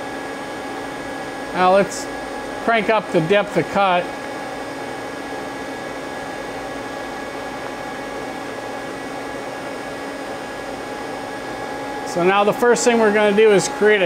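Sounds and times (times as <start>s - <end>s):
machine hum and hiss: 0.0s - 14.0s
steady machine tones: 10.4s - 14.0s.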